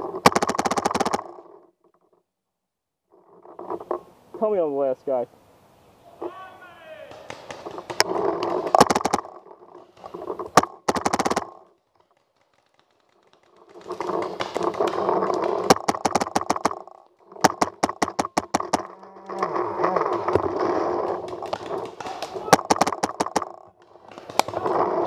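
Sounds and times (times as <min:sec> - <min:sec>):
paintball marker firing rapidly: 0:00.2 - 0:01.4, 0:07.1 - 0:09.4, 0:10.2 - 0:11.7, 0:13.5 - 0:25.0.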